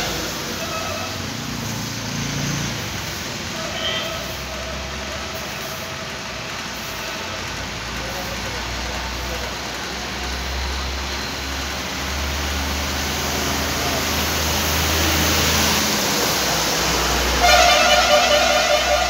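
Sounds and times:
traffic noise: 0.0 - 19.0
vehicle horn long blast: 3.6 - 4.3, 17.4 - 19.0.

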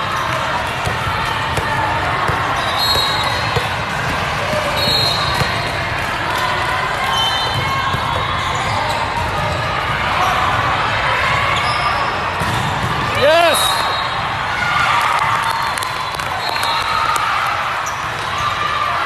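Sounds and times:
spectators chattering: 0.0 - 19.0
balls thumping on court floor: 0.3 - 5.9
balls being struck: 0.7 - 5.8.

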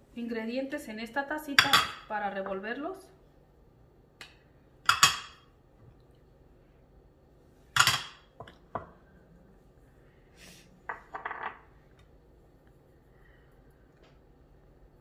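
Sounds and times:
ceramic and glass bowls clinking: 4.9 - 5.4, 7.8 - 9.0, 10.9 - 11.6.

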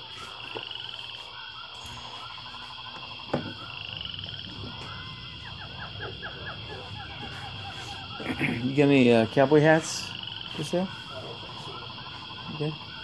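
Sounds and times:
croaking calls: 0.0 - 13.0
pulsed animal trills: 0.0 - 13.0
steady high hum: 0.0 - 13.0.

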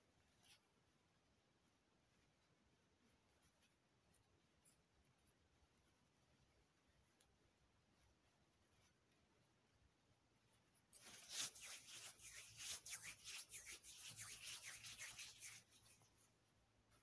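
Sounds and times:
scratching and rubbing strokes: 10.5 - 17.0.

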